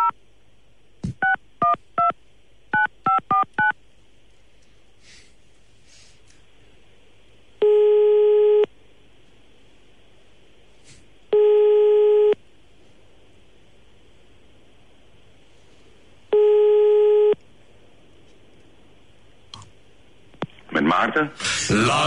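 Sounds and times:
telephone ringing tone beeps: 0:07.6 - 0:08.7, 0:11.3 - 0:12.4, 0:16.3 - 0:17.4.

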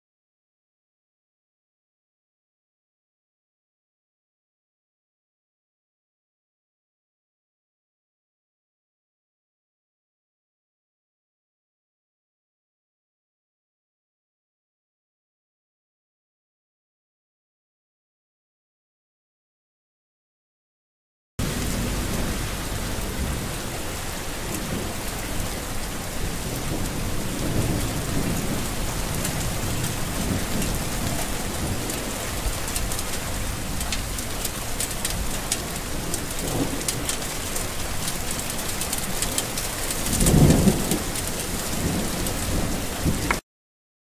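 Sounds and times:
heavy rain falling: 0:21.4 - 0:43.4
thunder rumbling: 0:21.4 - 0:43.4.

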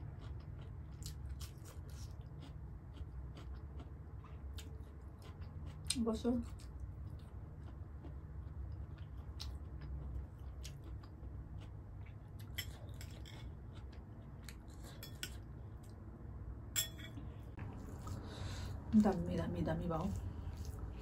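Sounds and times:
soft chewing: 0:00.0 - 0:16.1, 0:17.0 - 0:21.0
steady low hum: 0:00.0 - 0:21.0
metal spoon clinking in bowl: 0:16.8 - 0:17.2.

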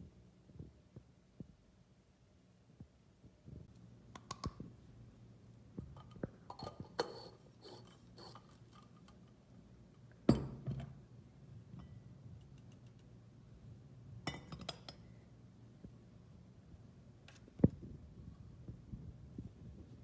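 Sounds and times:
ceramic tableware clinking: 0:10.3 - 0:10.9, 0:14.3 - 0:15.0.

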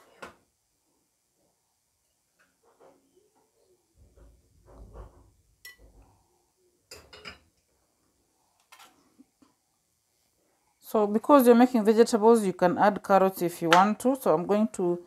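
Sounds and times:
glass clinking on cutting board: 0:06.9 - 0:07.5.

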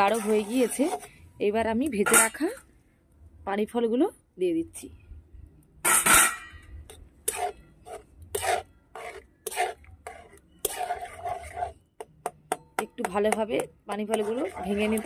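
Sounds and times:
metal spatula scraping a metal pan: 0:00.0 - 0:01.2, 0:02.0 - 0:02.6, 0:05.8 - 0:15.0.

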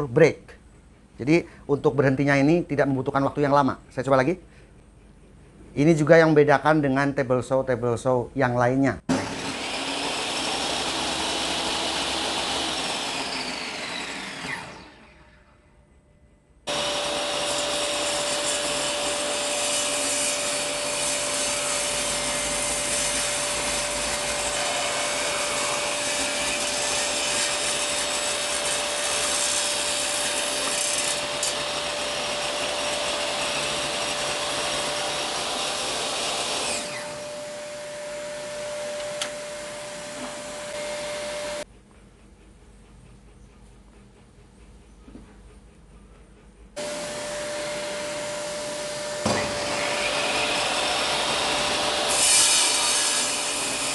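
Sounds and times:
saw motor winding down: 0:09.1 - 0:15.6, 0:16.7 - 0:41.7, 0:46.8 - 0:53.9
table saw motor whine: 0:09.1 - 0:15.7, 0:16.7 - 0:41.7, 0:46.8 - 0:53.9.

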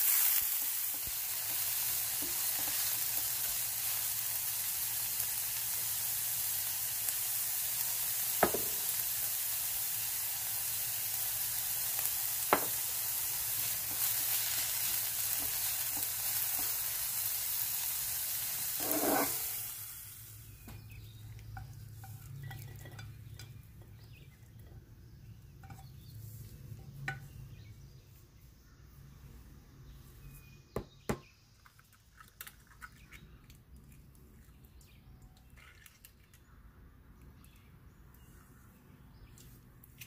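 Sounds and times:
vegetables sizzling in oil: 0:00.0 - 0:26.2
dishes clinking: 0:21.5 - 0:24.0.

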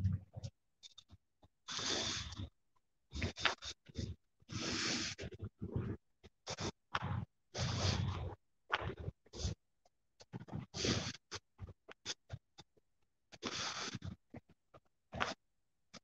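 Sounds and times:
rubbing on phone microphone: 0:03.2 - 0:09.6, 0:10.5 - 0:12.4.

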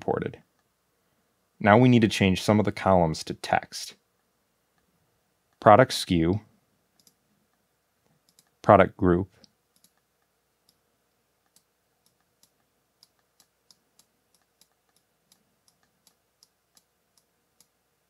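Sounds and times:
faint computer mouse clicks: 0:07.0 - 0:08.6, 0:09.4 - 0:10.8, 0:11.4 - 0:17.8.

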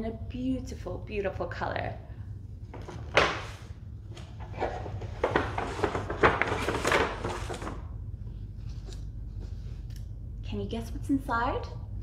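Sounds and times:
low steady hum: 0:00.0 - 0:12.0
paper bag rustling: 0:02.7 - 0:08.0.

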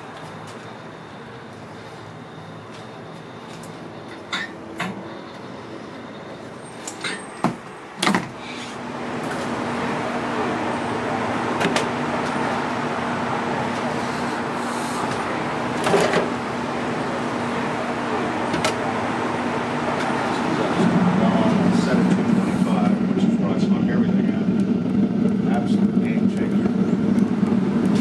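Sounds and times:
low hum: 0:08.8 - 0:28.0
steady rushing background: 0:08.8 - 0:28.0.

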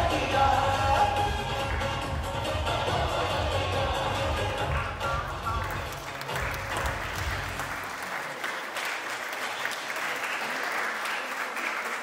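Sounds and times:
music bass: 0:00.0 - 0:07.6
audience applauding: 0:04.4 - 0:12.0.

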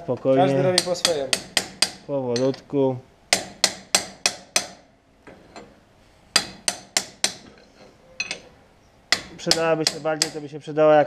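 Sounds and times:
hammer striking metal: 0:00.7 - 0:02.6, 0:03.3 - 0:04.9, 0:06.3 - 0:07.6, 0:09.1 - 0:10.5.

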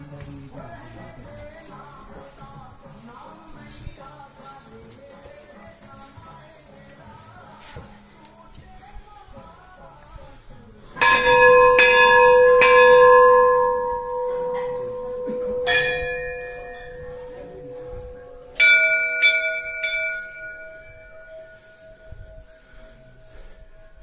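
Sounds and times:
higher-pitched bell: 0:11.0 - 0:24.0
temple bells ringing: 0:11.0 - 0:24.0.

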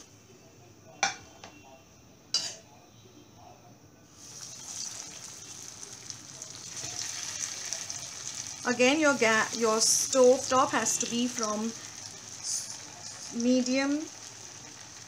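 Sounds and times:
hot oil sizzling: 0:04.1 - 0:15.0.

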